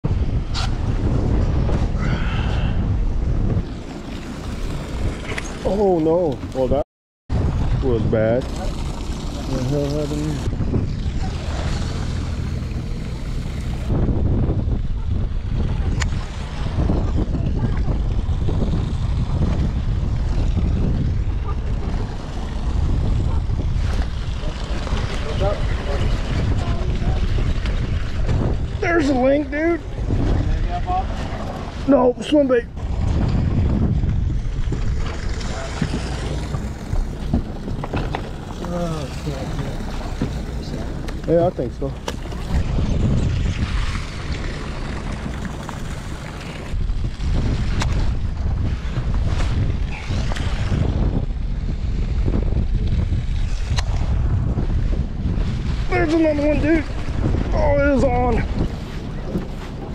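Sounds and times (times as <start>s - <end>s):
sea: 0.0s - 59.9s
wind buffeting microphone: 0.0s - 59.9s
boat noise: 0.1s - 59.9s.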